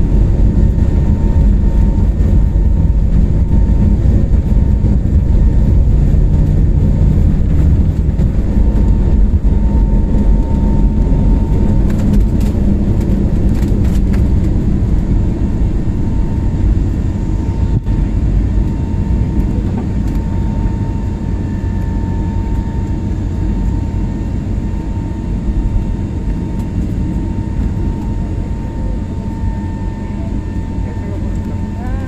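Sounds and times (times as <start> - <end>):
jet engine low rumble: 0.0 - 32.0
jet engine whine: 0.0 - 32.0.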